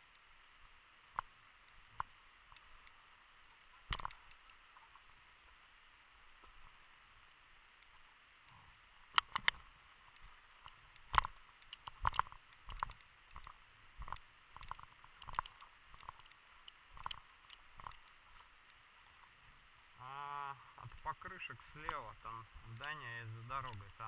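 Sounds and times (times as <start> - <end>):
gear clicking and knocking: 11.0 - 18.2.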